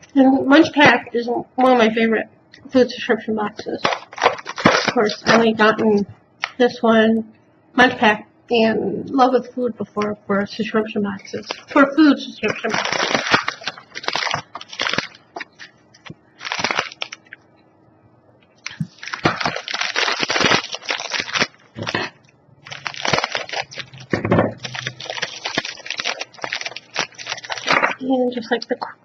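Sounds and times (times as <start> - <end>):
plastic packaging crinkling: 3.5 - 5.9, 11.2 - 17.4, 18.6 - 28.8.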